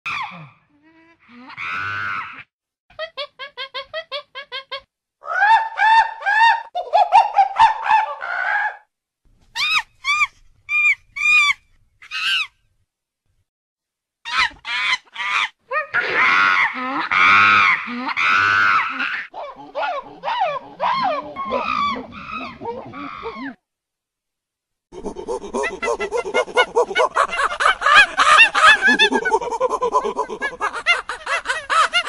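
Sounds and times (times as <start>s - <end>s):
monkey calls: 9.6s - 12.5s, 14.3s - 23.6s, 25.0s - 32.0s.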